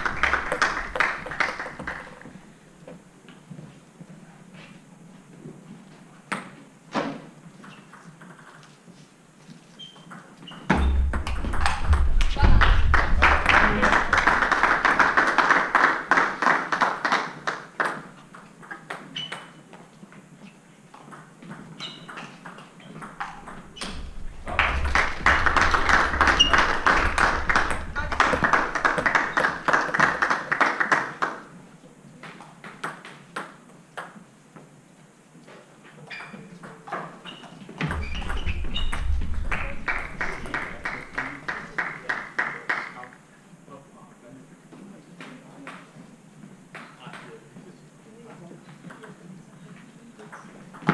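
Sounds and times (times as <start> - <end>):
spectators cheering: 24.5 - 30.2.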